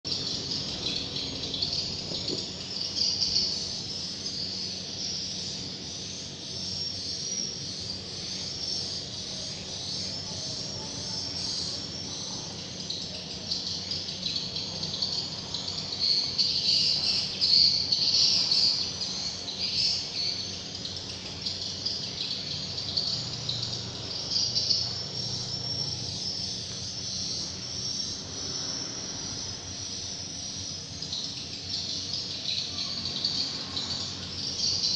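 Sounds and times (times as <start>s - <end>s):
birds chirping: 0.1s - 34.9s.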